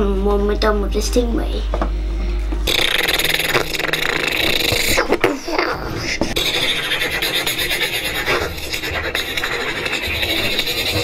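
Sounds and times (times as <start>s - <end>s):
boy making robot sound effects: 2.7s - 11.0s.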